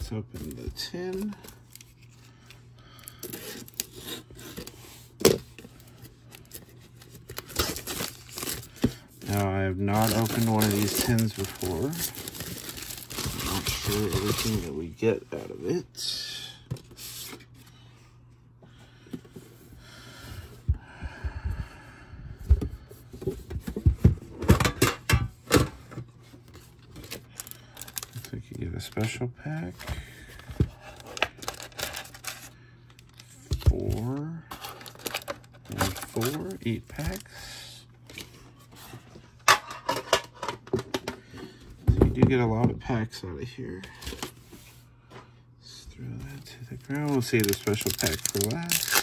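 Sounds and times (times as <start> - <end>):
plastic wrap rustling on tin: 7.2 - 14.8, 34.5 - 37.3, 46.4 - 49.0.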